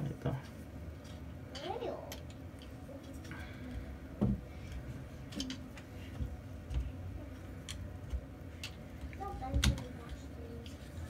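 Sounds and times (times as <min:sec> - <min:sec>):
plastic accessories clicking and knocking: 0:04.2 - 0:06.9, 0:07.6 - 0:10.8.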